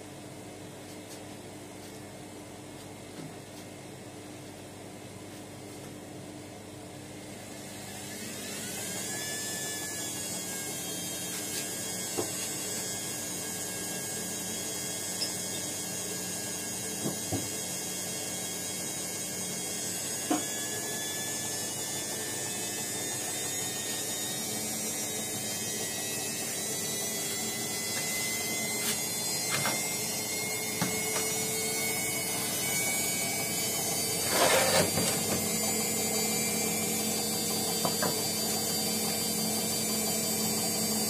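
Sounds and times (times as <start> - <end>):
washing machine motor whine: 0.0 - 41.0.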